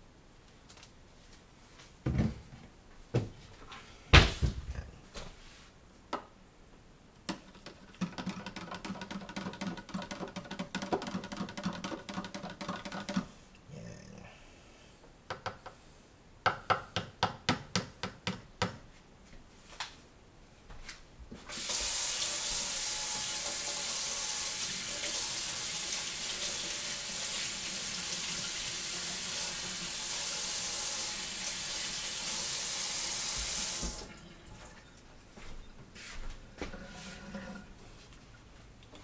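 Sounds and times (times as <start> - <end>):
tap running into sink: 33.3 - 34.1.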